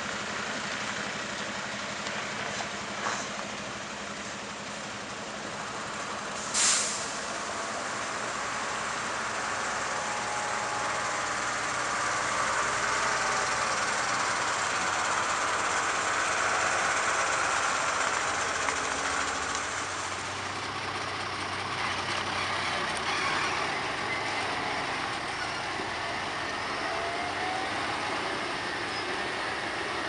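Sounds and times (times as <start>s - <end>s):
truck diesel engine running: 0.0s - 30.0s.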